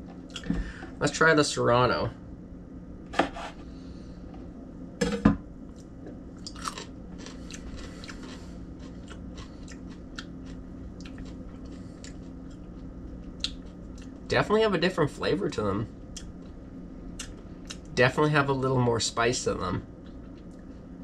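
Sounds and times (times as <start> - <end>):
steady low hum: 0.0 - 21.0
person chewing crunchy pepper: 5.7 - 14.3, 16.0 - 18.0, 20.0 - 20.8.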